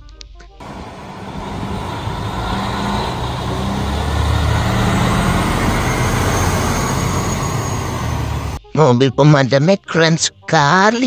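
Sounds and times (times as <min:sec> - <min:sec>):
fire engines rumbling: 0:00.6 - 0:08.6.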